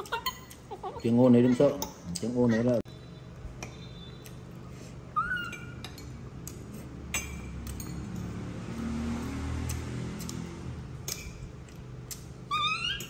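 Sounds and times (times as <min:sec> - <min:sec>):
monkey squeaking: 0:05.2 - 0:05.8, 0:12.4 - 0:13.0
tableware clinking: 0:07.0 - 0:08.3.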